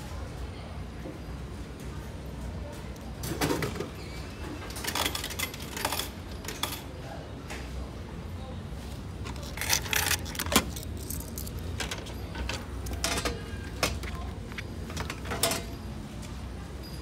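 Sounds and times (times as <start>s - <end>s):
coins clinking in return cup: 4.7s - 6.9s, 9.2s - 16.0s.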